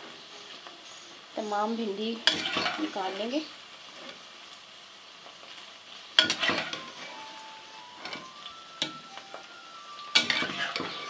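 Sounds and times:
faint sizzle of frying: 0.0s - 11.0s
metal utensil clanking on pan: 2.2s - 3.0s, 6.2s - 7.0s, 10.1s - 11.0s.

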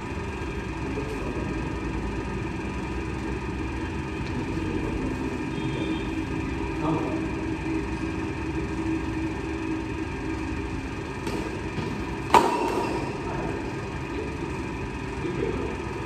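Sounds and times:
steady low hum: 0.0s - 16.0s
badminton racket hitting shuttlecock: 11.1s - 13.3s.

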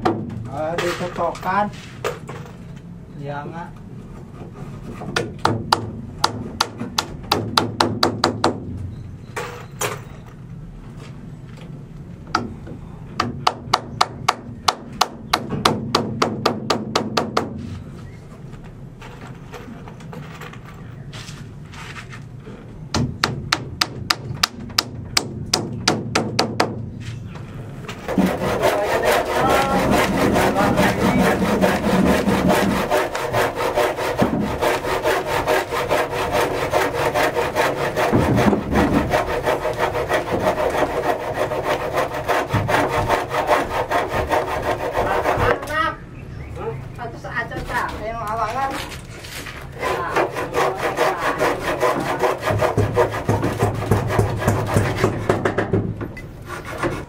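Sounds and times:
handsaw cutting wood: 28.0s - 45.6s, 49.8s - 55.4s, 56.5s - 57.0s.

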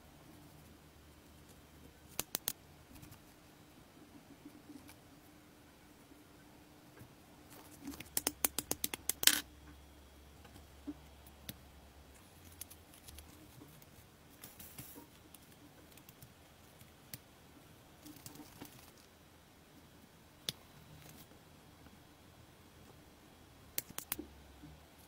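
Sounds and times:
small parts clicking and rustling: 7.6s - 9.5s.

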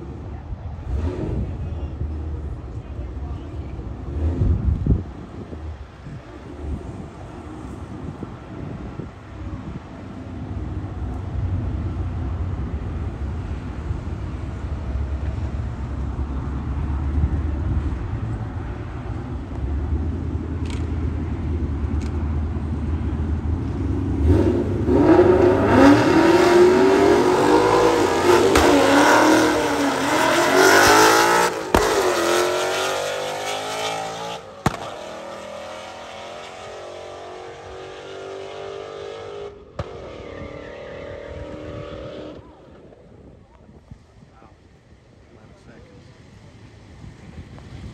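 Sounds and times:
car engines rumbling at idle: 0.0s - 37.7s, 39.5s - 47.9s
engine revving through upshifts: 24.2s - 42.6s
cars launching with loud burst: 24.3s - 36.8s, 39.7s - 41.8s.

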